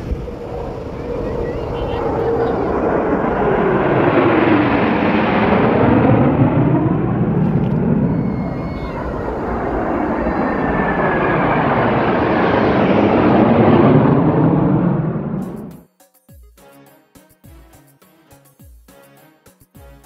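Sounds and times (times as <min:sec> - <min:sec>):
fighter jets roaring overhead: 0:00.0 - 0:15.8.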